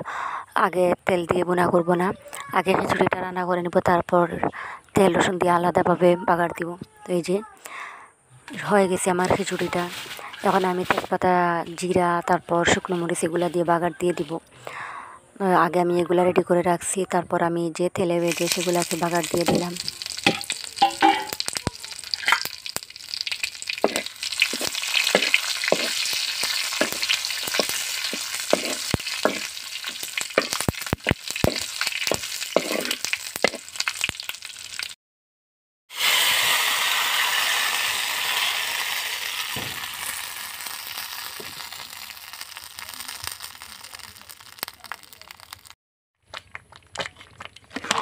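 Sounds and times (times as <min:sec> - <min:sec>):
hot oil sizzling on food: 0:08.6 - 0:12.1, 0:18.2 - 0:35.0, 0:35.9 - 0:45.8
spices sizzling in hot oil: 0:08.6 - 0:14.2, 0:18.2 - 0:35.0, 0:35.9 - 0:45.8
metal spoon scraping pan: 0:19.2 - 0:21.5, 0:23.7 - 0:33.6.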